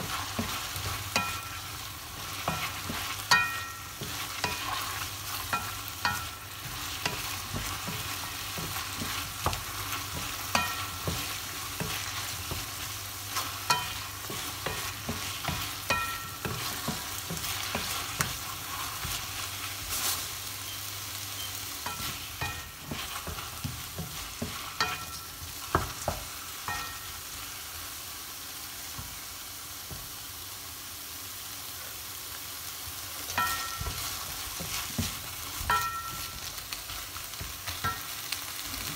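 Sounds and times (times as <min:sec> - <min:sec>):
food sizzling in a frying pan: 0:00.0 - 0:38.9
spatula knocking against pan: 0:05.5 - 0:12.7, 0:33.4 - 0:36.4.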